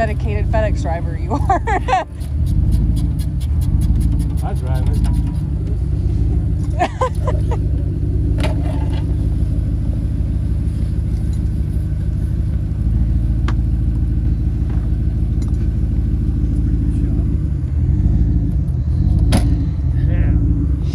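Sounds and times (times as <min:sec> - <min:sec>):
vehicle engine idling: 0:00.0 - 0:20.9.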